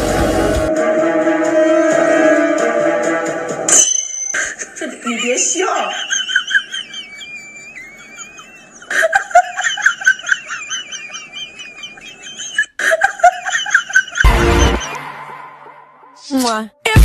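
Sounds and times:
high pulsing laughter: 4.4 - 15.9.

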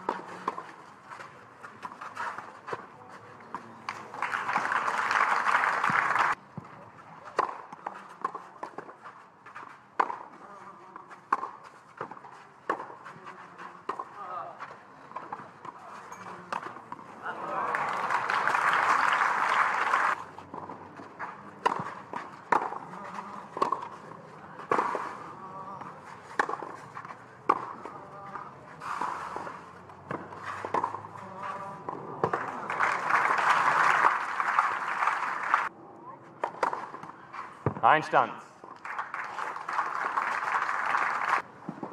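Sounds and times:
crowd applause: 3.9 - 6.4, 17.2 - 20.2, 32.2 - 35.7, 38.8 - 41.4
racket striking tennis ball: 7.3 - 9.0, 10.0 - 10.3, 11.3 - 13.0, 13.8 - 14.1, 20.5 - 25.3, 26.2 - 32.6, 36.4 - 37.8.

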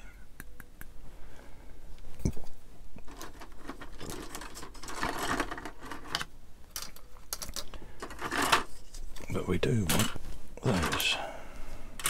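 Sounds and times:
plastic parts clicking and rattling: 3.0 - 11.2.

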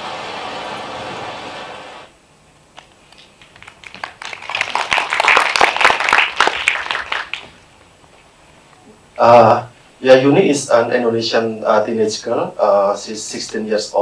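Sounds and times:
audience clapping: 2.8 - 7.6.

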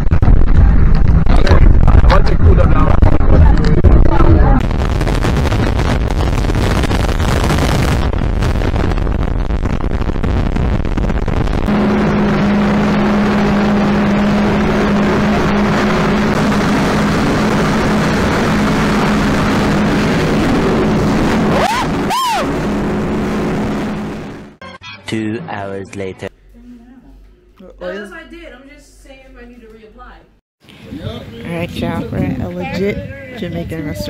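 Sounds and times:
wind and spray rushing: 0.0 - 24.6
rising and falling tone: 11.3 - 25.5
jet ski engine drone: 11.6 - 24.6.

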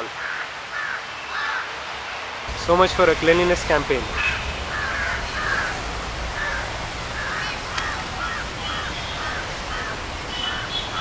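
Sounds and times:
crows cawing: 0.0 - 1.7, 4.1 - 11.0
outdoor background noise: 0.0 - 11.0.

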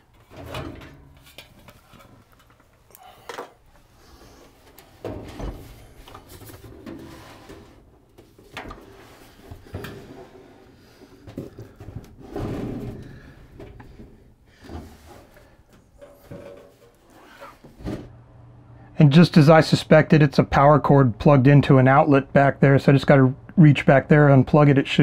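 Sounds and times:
knocks and clunks: 5.0 - 7.2
microwave scraping as it slides: 6.5 - 7.9.

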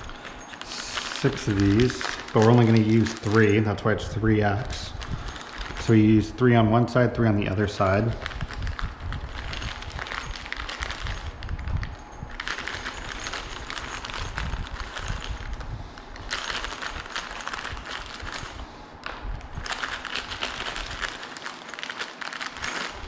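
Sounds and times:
wooden dowels and hardware clattering: 0.0 - 3.8.

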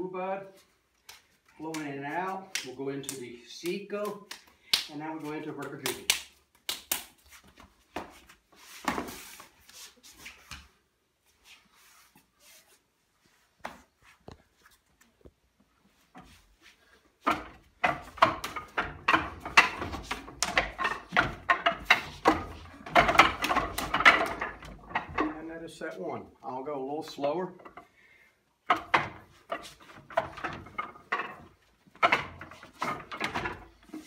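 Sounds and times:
hand slaps: 1.0 - 5.0, 5.6 - 7.3
wooden dummy knocks and slaps: 1.6 - 9.2, 17.2 - 25.5, 28.6 - 34.0.

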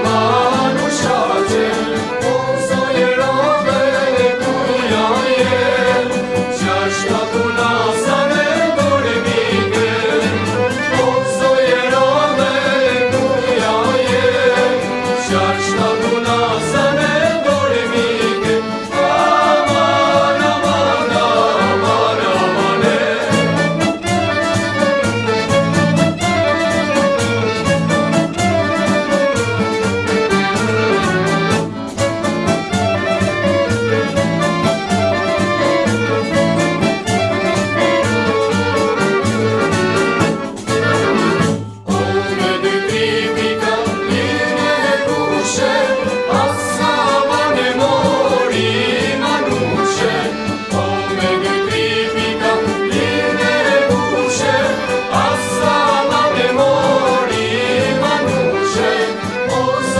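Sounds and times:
woman singing: 0.0 - 23.6, 41.9 - 59.9
folk band playing: 0.0 - 59.9.

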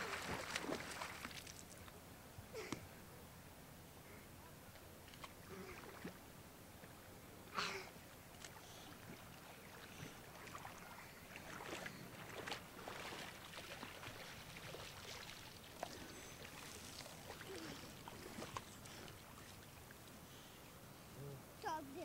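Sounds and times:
water washing at shore: 0.0 - 1.8, 9.0 - 20.0
child wading through water: 0.0 - 1.9, 5.1 - 20.8.

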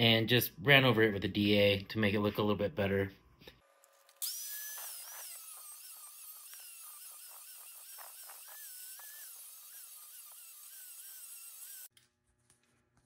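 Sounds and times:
angle grinder grinding steel: 3.7 - 11.9.

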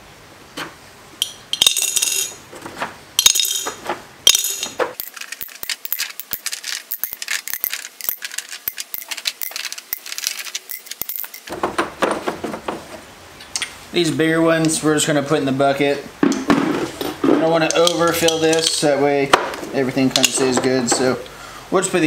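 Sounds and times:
metal sockets clinking on glass: 1.2 - 2.4, 3.2 - 11.5.

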